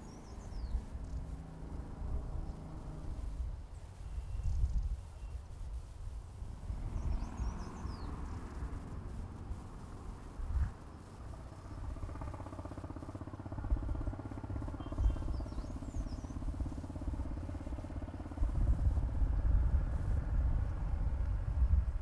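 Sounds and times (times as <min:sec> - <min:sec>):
faint bird chirps: 0:00.0 - 0:01.4, 0:02.4 - 0:05.8, 0:06.6 - 0:10.0, 0:14.3 - 0:19.0
vehicle engine humming: 0:00.0 - 0:22.0.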